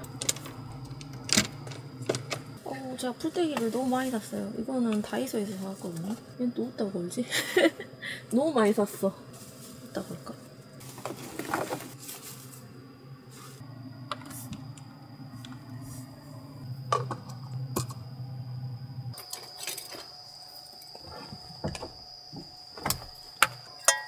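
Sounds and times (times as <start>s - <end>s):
low hum: 0.0s - 3.1s, 4.9s - 19.2s.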